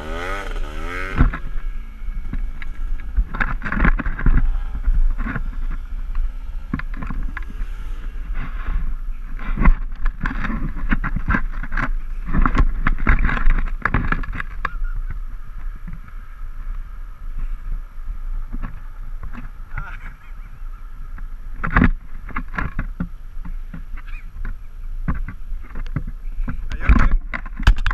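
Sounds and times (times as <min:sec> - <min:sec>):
atv engine running: 0:00.0 - 0:27.9
wind buffeting microphone: 0:00.0 - 0:27.9.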